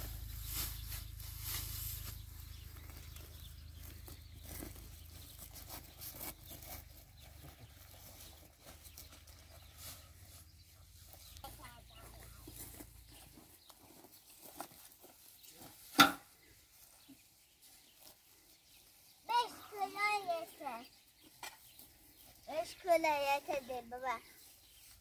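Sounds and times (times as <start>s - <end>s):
pitchfork rustling and scraping hay: 0.0s - 13.0s.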